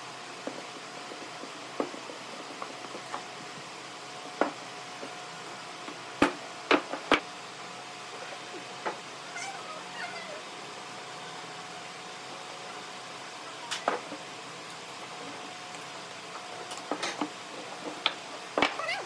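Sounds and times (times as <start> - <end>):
faint wavering pitched calls: 9.3 - 10.4.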